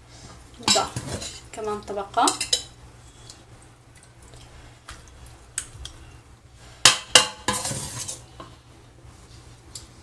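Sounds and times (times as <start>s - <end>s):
metal spoon clinking on cookware: 2.2s - 2.8s
spoon scraping: 7.4s - 8.3s.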